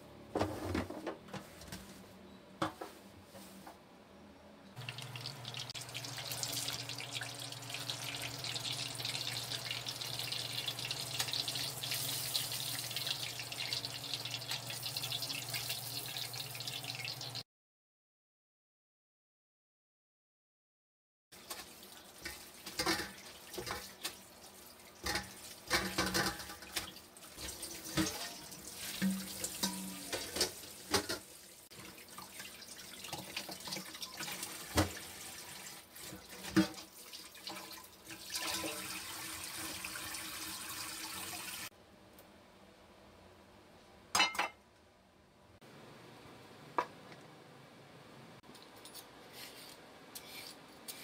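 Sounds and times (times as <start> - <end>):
water running into sink: 4.8 - 17.4, 21.4 - 41.7.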